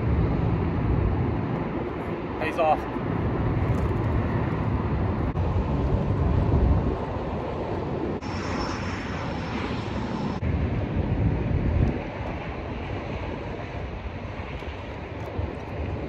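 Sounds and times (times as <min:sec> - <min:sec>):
wind buffeting microphone: 0:00.0 - 0:16.0
faint high whine: 0:06.8 - 0:11.0.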